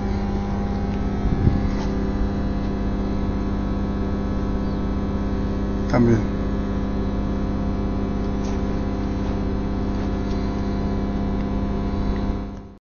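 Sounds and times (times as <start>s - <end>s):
electrical mains hum: 0.0s - 12.8s.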